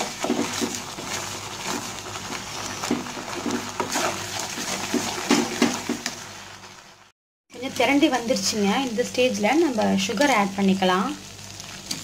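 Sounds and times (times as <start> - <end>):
spatula scraping a pan: 0.0 - 6.1.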